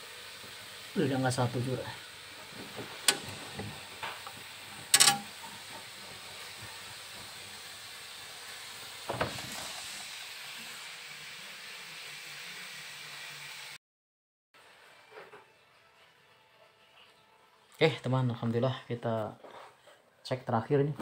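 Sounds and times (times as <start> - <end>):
steady hiss: 0.0 - 13.8.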